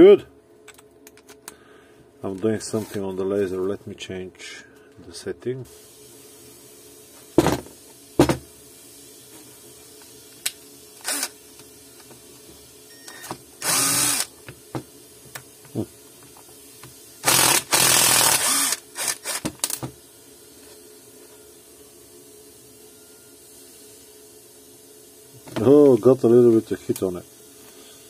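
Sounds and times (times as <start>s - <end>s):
impact driver driving screw: 11.0s - 11.3s, 13.6s - 14.3s, 17.2s - 19.8s.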